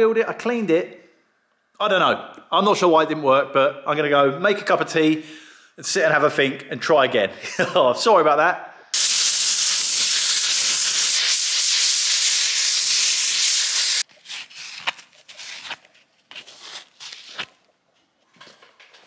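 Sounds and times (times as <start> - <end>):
gas torch flame hissing: 9.0 - 14.0.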